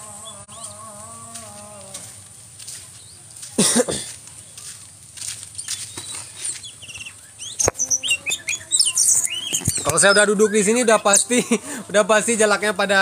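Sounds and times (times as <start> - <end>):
sharp bird chirps: 5.6 - 11.2.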